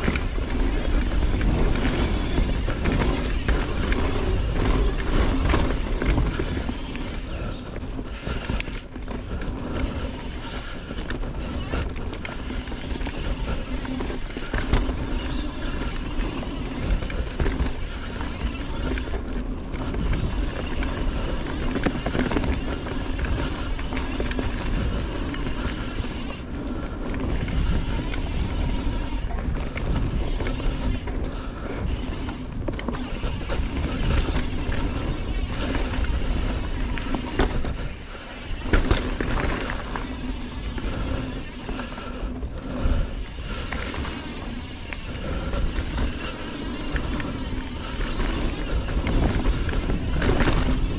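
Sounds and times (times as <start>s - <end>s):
bike and chain rattling: 0.0s - 50.9s
bike tyres on dirt trail: 0.0s - 50.9s
wind rumble on microphone: 0.0s - 50.9s.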